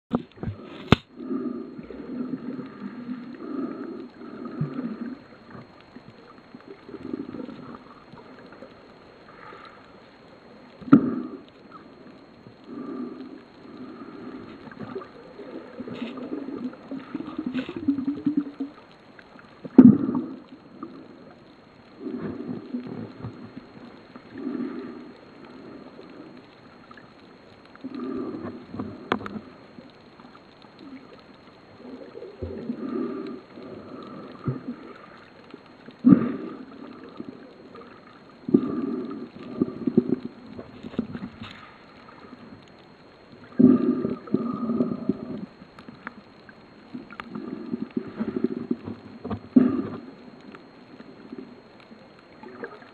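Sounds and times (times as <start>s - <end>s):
breathing through a snorkel: 36.0s - 36.9s, 38.5s - 40.3s.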